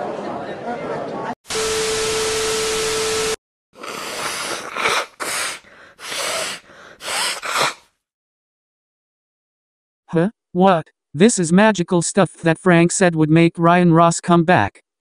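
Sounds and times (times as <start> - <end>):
person sniffing hard: 3.8 - 7.9.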